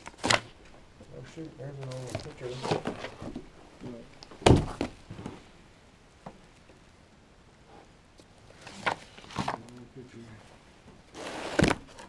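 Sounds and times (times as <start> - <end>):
loud thump: 4.4 - 5.0.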